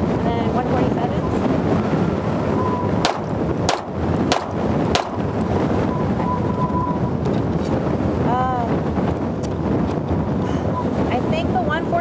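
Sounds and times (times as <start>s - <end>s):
wind buffeting microphone: 0.0s - 12.0s
pistol shots: 3.0s - 5.2s.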